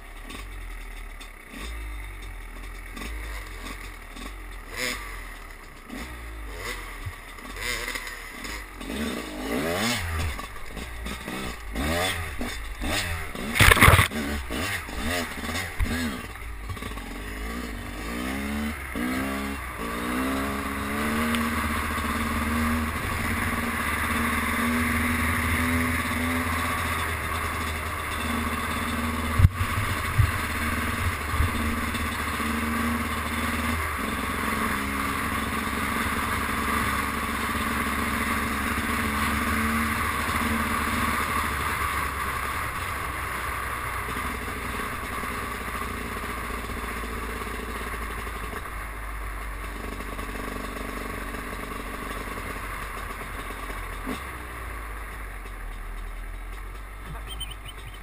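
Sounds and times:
dirt bike engine running: 0.0 - 58.0.

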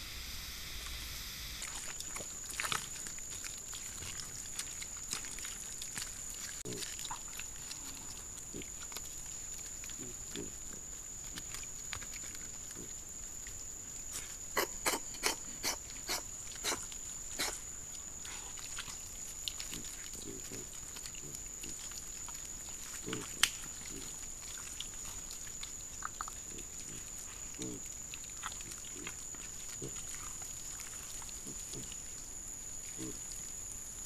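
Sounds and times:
boar grunting softly: 26.5 - 27.8.

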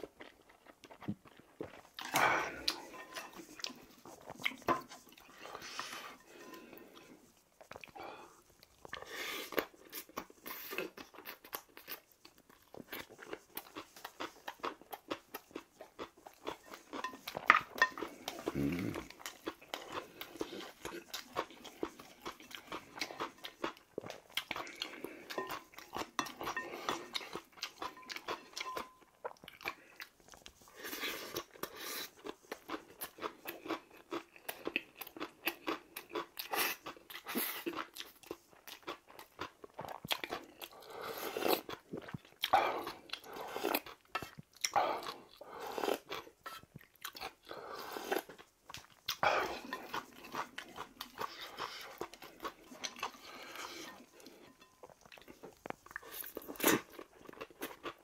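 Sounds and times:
man chewing food: 0.0 - 58.0
slurping noodles: 18.0 - 23.7.

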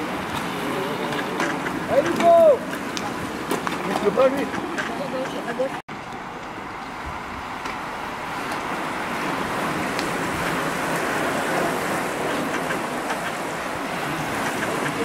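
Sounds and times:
bicycle tyres hissing on wet road: 6.0 - 15.0.

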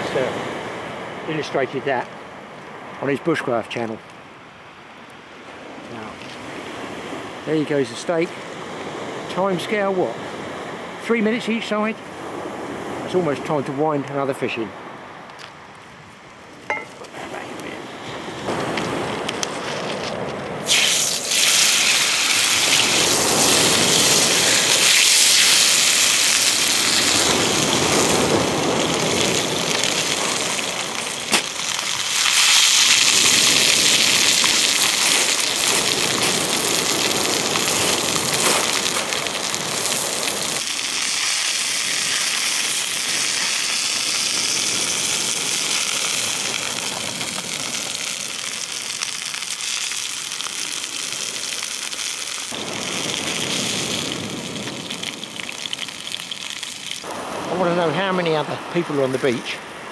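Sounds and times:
steak sizzling in frying pan: 20.6 - 57.0.

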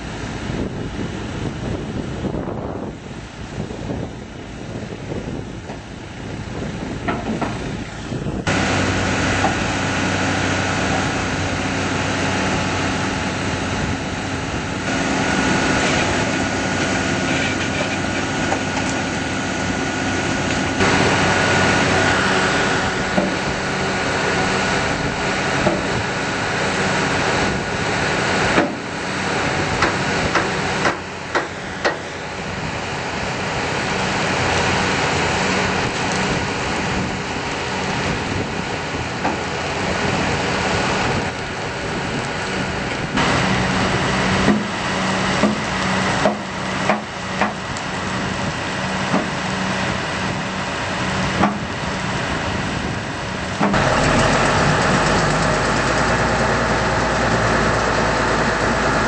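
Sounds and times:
diesel engine running: 0.0 - 59.0.

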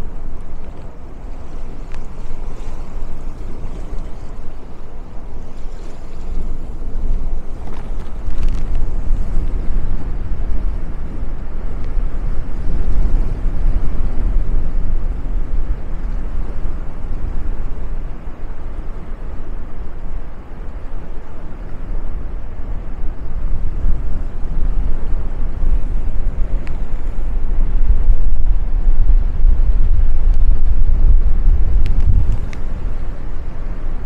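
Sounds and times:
loud low outdoor rumble: 0.0 - 34.0.

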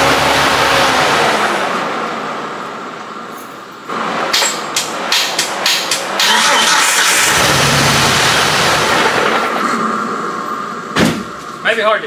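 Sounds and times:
engine cranking on starter: 6.2 - 9.8.

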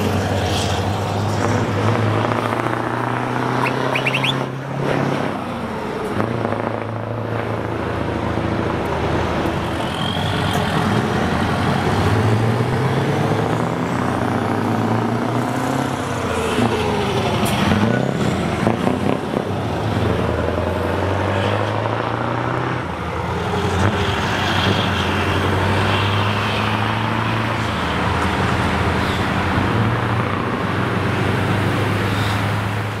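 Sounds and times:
truck engine with open exhaust: 0.0 - 33.0.

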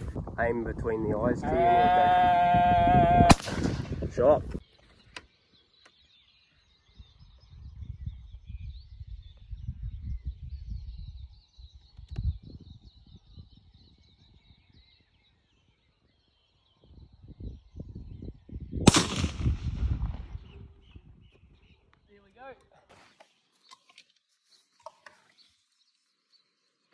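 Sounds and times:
rifle shot: 3.3 - 4.0, 18.8 - 20.4
faint birdsong: 4.0 - 18.9, 19.9 - 26.9.

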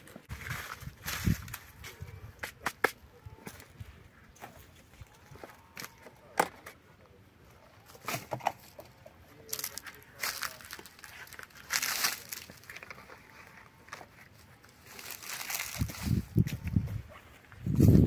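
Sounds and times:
rustling and crinkling: 7.8 - 18.0.

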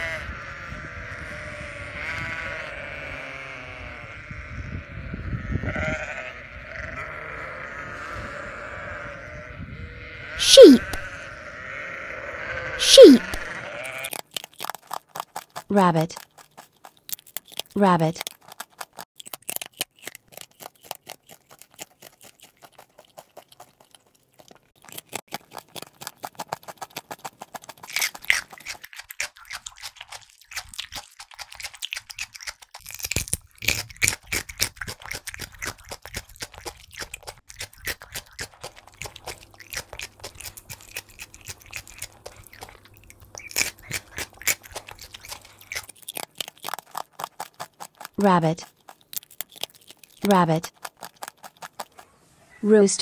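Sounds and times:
rabbits chewing: 10.4 - 52.6.

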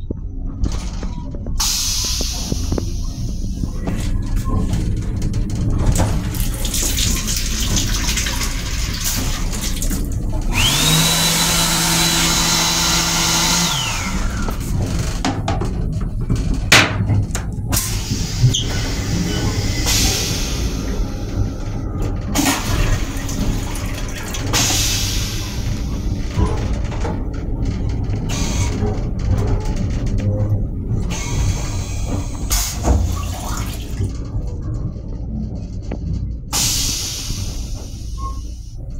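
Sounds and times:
low rumble of railcar: 0.0 - 11.7, 12.3 - 38.9
toilet flushing: 5.6 - 15.7, 16.6 - 27.7, 30.9 - 34.4, 36.5 - 38.7
faucet running water: 6.3 - 14.2
hand dryer blowing: 8.4 - 14.7.

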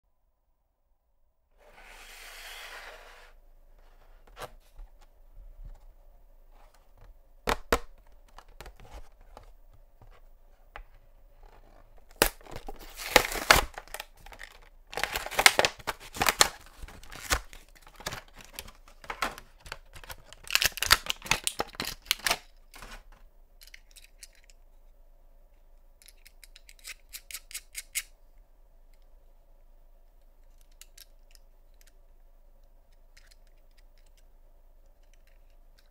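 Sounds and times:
plastic crinkling: 11.5 - 23.2
cardboard tearing: 12.2 - 14.0, 15.0 - 17.4.

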